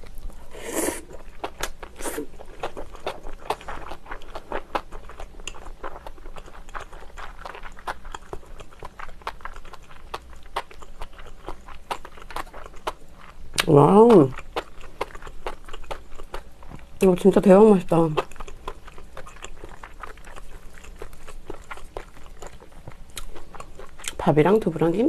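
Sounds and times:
chewing mouth clicks: 18.2 - 24.2.

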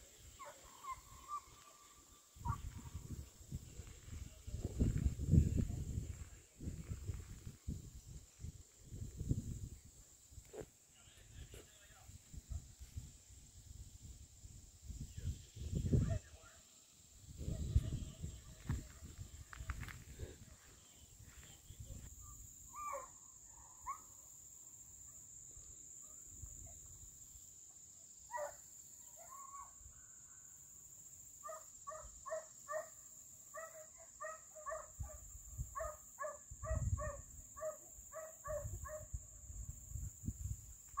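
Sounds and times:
distant hounds baying: 0.3 - 2.9, 33.6 - 39.1.

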